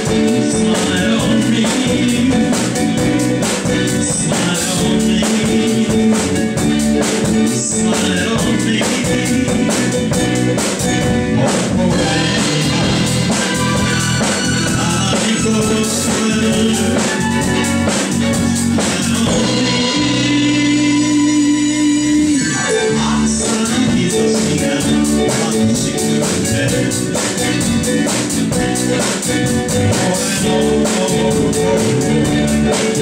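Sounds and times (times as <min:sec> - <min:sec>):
drum kit: 0:00.0 - 0:33.0
electric bass: 0:00.0 - 0:33.0
electric guitar: 0:00.0 - 0:33.0
keyboard: 0:00.0 - 0:33.0.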